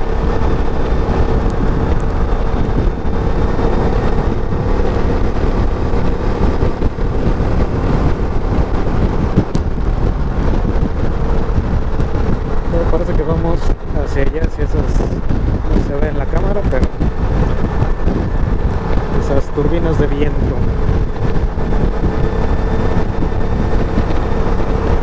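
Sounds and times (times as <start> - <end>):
scooter engine drone: 0.0 - 25.0
wind buffeting microphone: 0.0 - 25.0.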